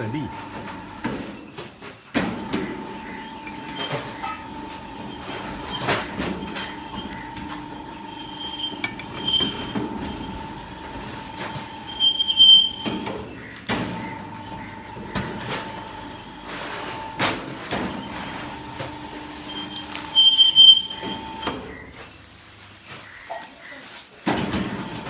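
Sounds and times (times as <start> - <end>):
high metallic squeals: 3.0 - 10.5, 11.5 - 13.0, 19.3 - 21.5.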